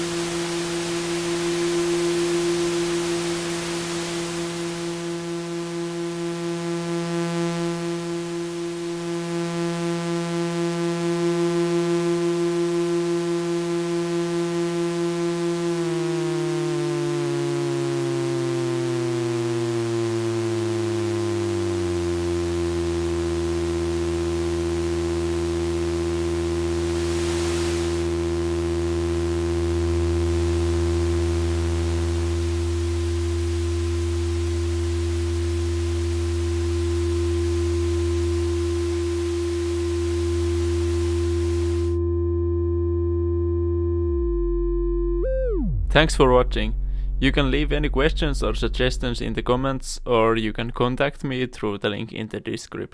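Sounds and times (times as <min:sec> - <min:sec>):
synth note gliding down: 0:00.0 - 0:51.4
synthesizer tones: 0:40.1 - 0:51.1.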